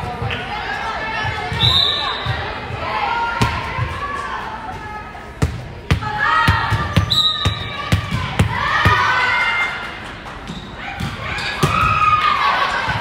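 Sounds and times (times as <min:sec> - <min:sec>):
girls shouting and cheering: 0:07.6 - 0:10.0, 0:10.8 - 0:13.0.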